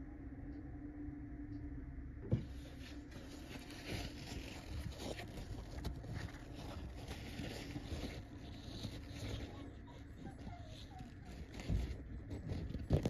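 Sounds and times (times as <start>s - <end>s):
tissue paper rustling: 2.6s - 13.0s.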